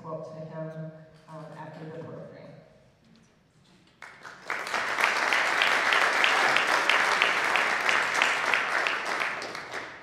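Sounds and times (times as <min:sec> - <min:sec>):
nearby person clapping: 0:03.9 - 0:10.0
audience applauding: 0:04.0 - 0:10.0.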